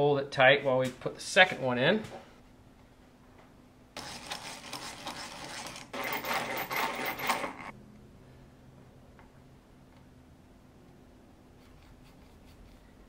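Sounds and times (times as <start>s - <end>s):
hand drill whirring into wood: 4.0s - 7.7s.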